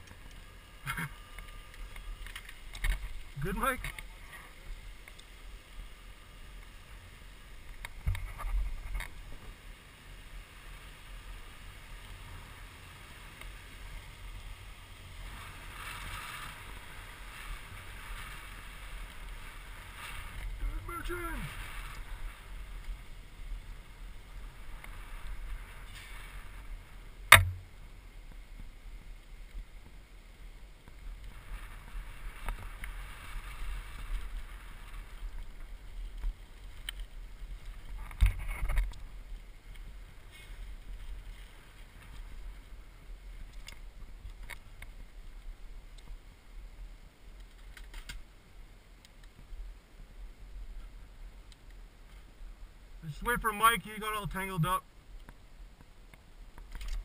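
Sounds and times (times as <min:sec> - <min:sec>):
tyres on gravel: 0:00.0 - 0:45.2, 0:53.0 - 0:54.9
faint ticks and rattles: 0:00.0 - 0:54.0
sharp knock: 0:27.3 - 0:27.7.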